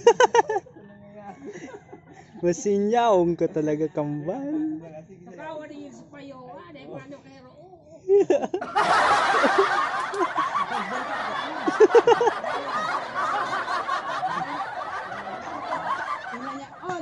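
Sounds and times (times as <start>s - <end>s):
crowd laughing: 0.0s - 2.5s, 8.1s - 17.0s.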